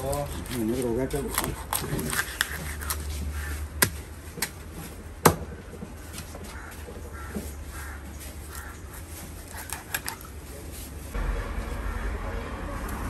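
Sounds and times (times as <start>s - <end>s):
faint birds calling: 5.5s - 9.7s.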